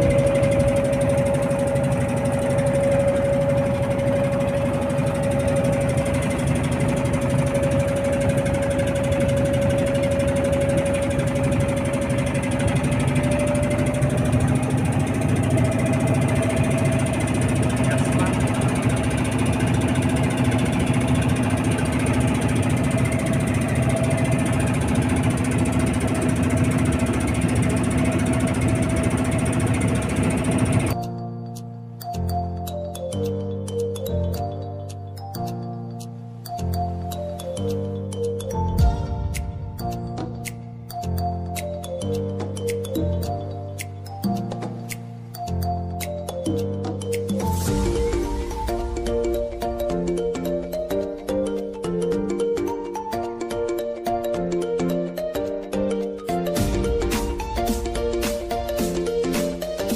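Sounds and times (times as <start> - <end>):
boat engine running: 0.0 - 31.3, 47.4 - 52.7.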